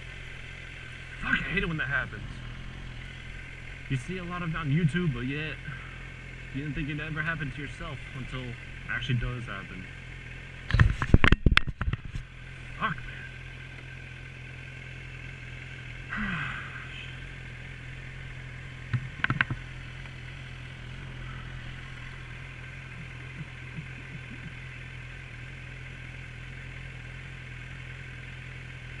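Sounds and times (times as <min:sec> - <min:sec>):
motorcycle engine idling: 0:00.0 - 0:29.0
sharp knocks: 0:18.9 - 0:19.6.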